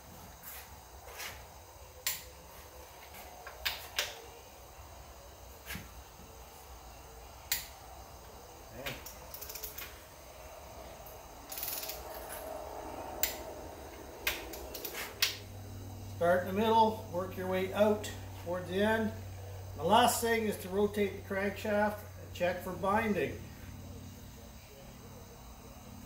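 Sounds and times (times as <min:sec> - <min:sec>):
torque wrench clicks: 0:07.5 - 0:07.8, 0:09.0 - 0:09.9, 0:11.5 - 0:12.2, 0:14.2 - 0:15.4
ratchet ticking: 0:09.0 - 0:09.9, 0:11.5 - 0:12.0.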